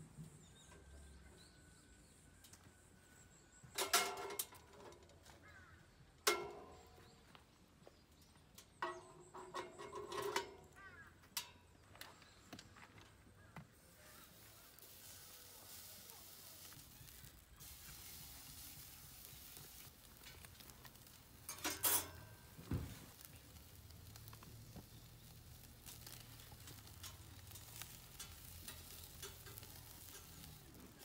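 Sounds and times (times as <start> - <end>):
meat sizzling on a grill: 13.8 - 31.0.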